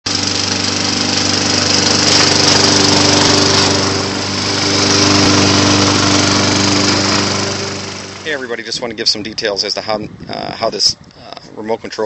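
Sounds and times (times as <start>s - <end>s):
lawn mower engine running: 0.0s - 9.5s.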